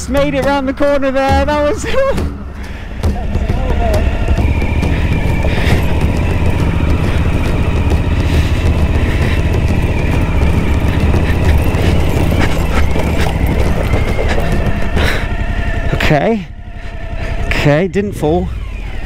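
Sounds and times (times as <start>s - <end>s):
motorcycle engine at low revs: 0.0s - 19.0s
tyres rolling over gravel: 3.6s - 15.3s.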